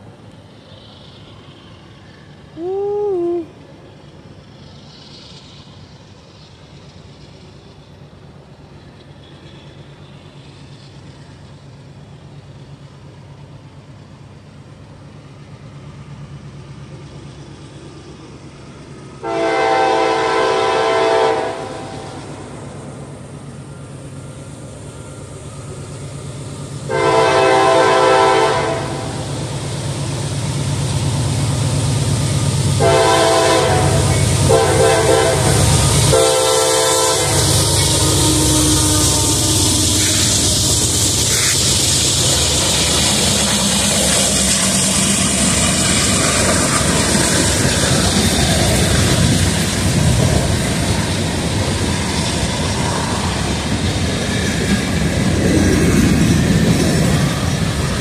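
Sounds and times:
locomotive engine rumble: 0.0s - 58.0s
multi-note train air horn: 19.2s - 22.5s, 26.9s - 29.3s, 32.8s - 41.6s.

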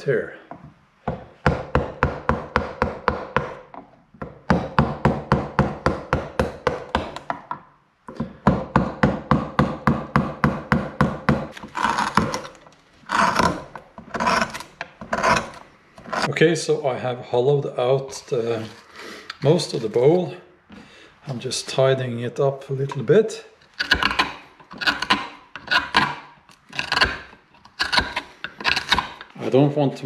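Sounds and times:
mallet knocking chisel into wood: 1.1s - 12.4s
chisel scraping wood: 9.6s - 16.3s, 18.1s - 20.2s, 22.9s - 29.7s.

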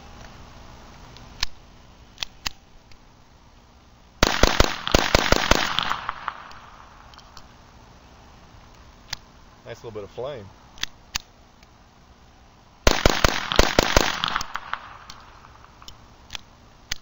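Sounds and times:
rapid pistol shots: 4.2s - 6.9s, 12.8s - 15.8s
small clicks: 14.3s - 17.0s.

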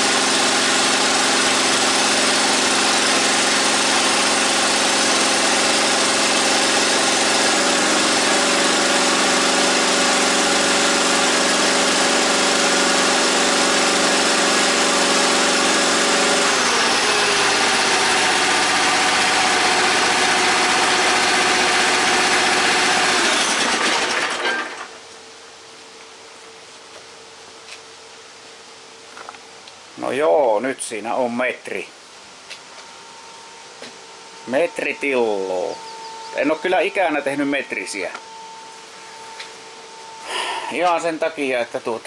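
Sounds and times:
engine running: 0.0s - 25.2s, 32.4s - 42.0s.

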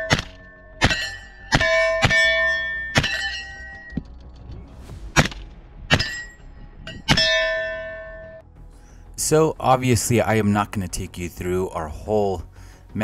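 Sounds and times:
steel targets ringing: 0.0s - 4.0s, 5.9s - 8.4s.

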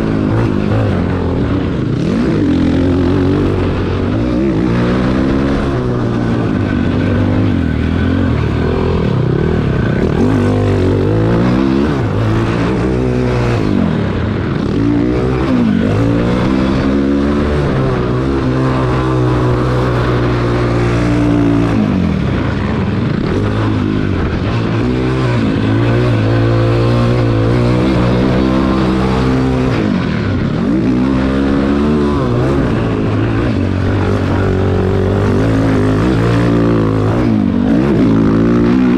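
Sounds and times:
quad engine revving: 0.0s - 38.9s.

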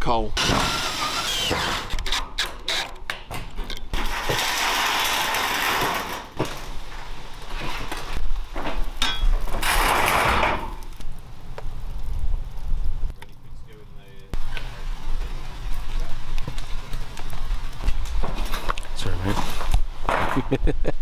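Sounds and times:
screws grinding metal sheeting: 0.4s - 3.3s, 3.9s - 6.4s.

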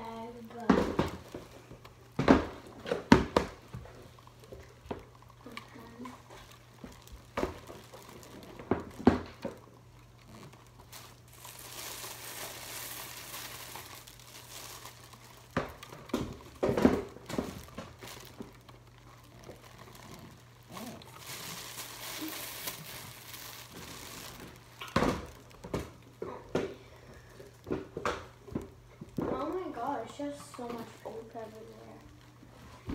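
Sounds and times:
plastic bag crinkling and rustling: 0.0s - 32.9s.

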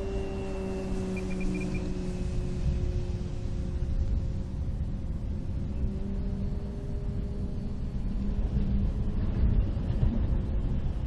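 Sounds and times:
model plane motor drone: 0.0s - 9.8s
wind rumbling on microphone: 0.0s - 11.0s.

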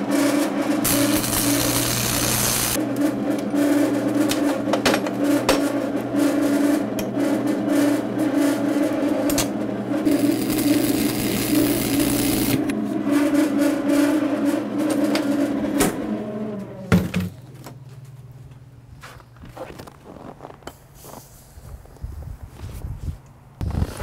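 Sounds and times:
welder humming: 0.8s - 2.8s, 9.3s - 12.8s
welding arc crackling hiss: 0.8s - 2.8s, 10.1s - 12.7s.

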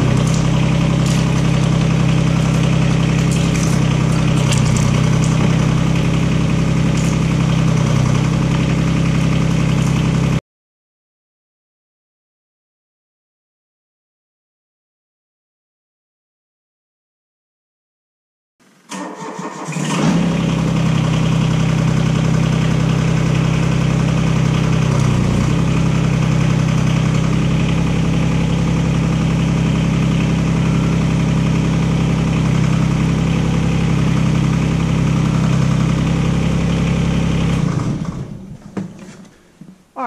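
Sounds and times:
diesel engine running: 0.0s - 10.4s, 18.9s - 39.3s.

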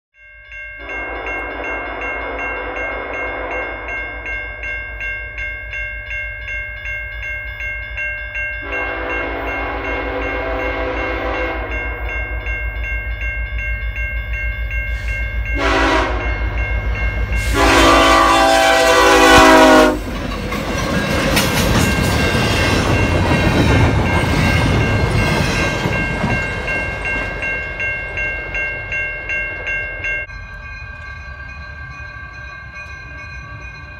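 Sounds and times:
crossing bell ringing: 0.2s - 33.9s
locomotive air horn blasts: 0.8s - 3.9s, 8.6s - 12.0s, 15.6s - 16.4s, 17.4s - 20.1s
train rumble and wheel noise: 0.8s - 33.9s.

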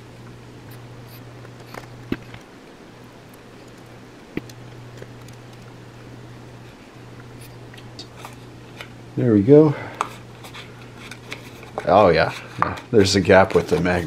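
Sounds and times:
steady low hum: 0.0s - 14.0s
small ticks: 3.3s - 5.8s.

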